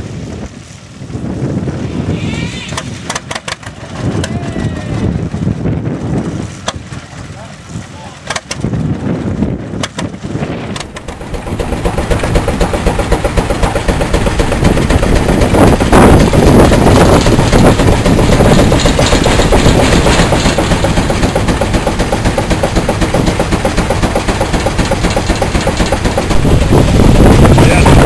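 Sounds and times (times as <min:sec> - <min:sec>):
steam engine exhaust beating: 0:10.6 - 0:28.0.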